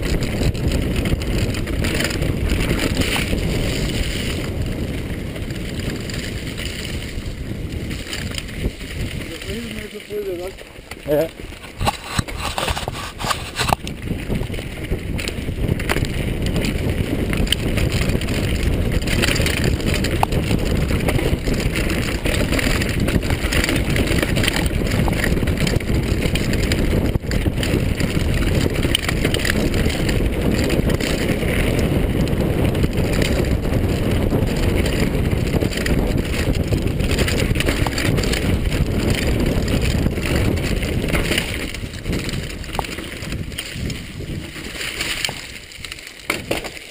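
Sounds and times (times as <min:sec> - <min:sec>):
mountain bike rumble and rattle: 0:00.0 - 0:46.9
wind on microphone: 0:00.0 - 0:46.9
sharp knocks from roots and rocks: 0:11.0 - 0:13.8, 0:46.2 - 0:46.9.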